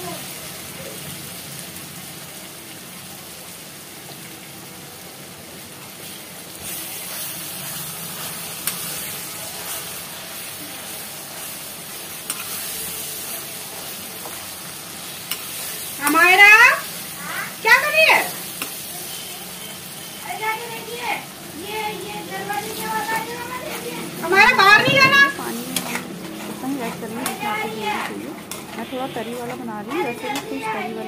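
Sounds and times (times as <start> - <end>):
masala sizzling in oil: 0.0 - 31.0
spatula scraping and tapping: 24.8 - 30.6.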